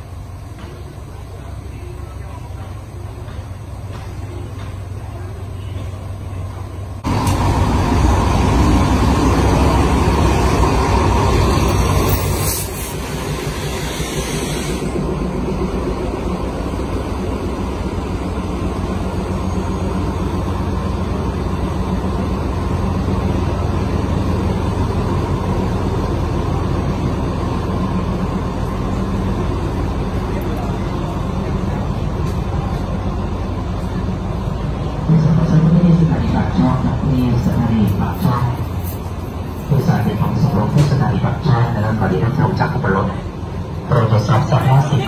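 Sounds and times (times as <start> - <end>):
diesel train engine rumble: 0.0 - 45.0
brief hiss: 12.2 - 15.0.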